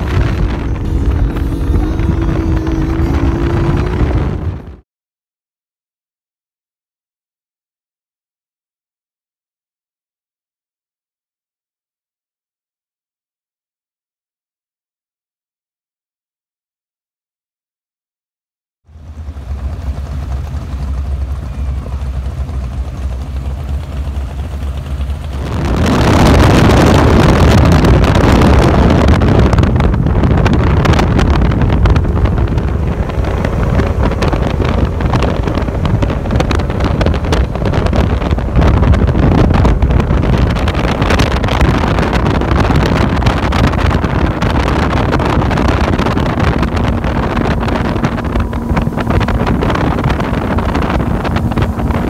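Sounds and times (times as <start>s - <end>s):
speedboat motors: 0.0s - 4.8s, 18.9s - 52.0s
wind and spray on microphone: 25.4s - 52.0s.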